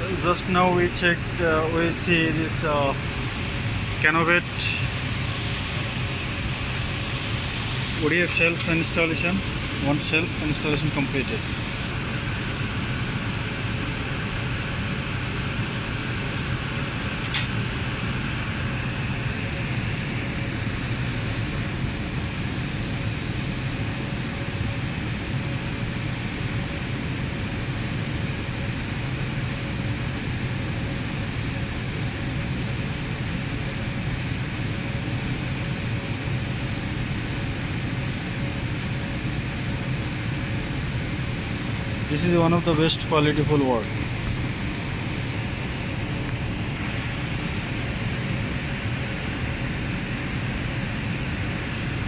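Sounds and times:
cooling fans whooshing: 0.0 - 52.0
low hum: 37.0 - 52.0.

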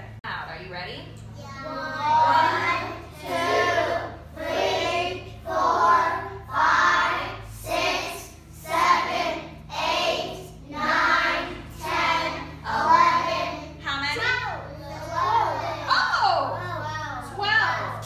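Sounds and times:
children counting aloud together: 1.4 - 8.2, 12.0 - 18.0.

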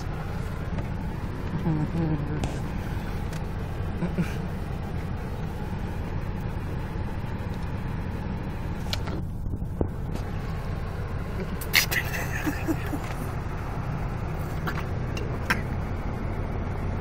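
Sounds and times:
low rumble: 0.0 - 11.7.

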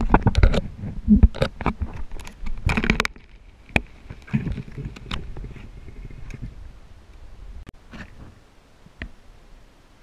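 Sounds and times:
muffled underwater knocks and clicks: 0.0 - 6.5.

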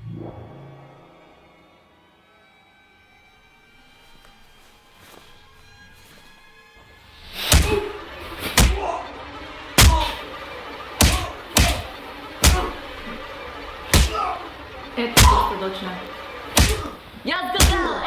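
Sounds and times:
low music score: 0.0 - 18.0
heavy punch hits: 9.8 - 10.2, 11.0 - 12.7, 13.9 - 14.2, 16.5 - 17.0.

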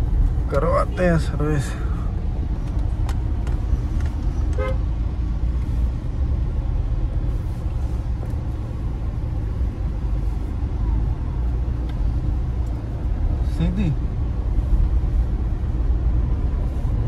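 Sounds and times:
engine and road rumble: 0.0 - 17.0
car horn toot: 4.5 - 4.8.

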